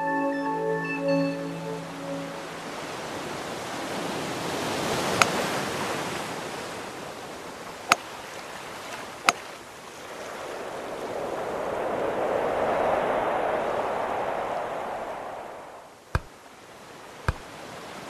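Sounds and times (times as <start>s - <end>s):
steady rushing noise: 10.2s - 16.3s.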